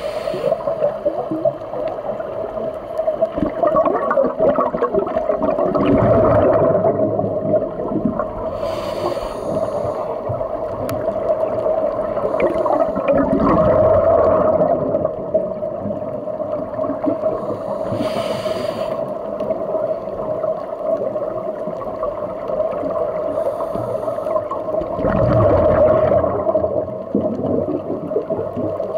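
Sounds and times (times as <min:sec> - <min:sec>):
regulator hisses: 0:00.0 - 0:01.0, 0:08.5 - 0:10.2, 0:17.4 - 0:19.2
regulator bubbling gurgle: 0:00.0 - 0:18.0, 0:19.0 - 0:28.9.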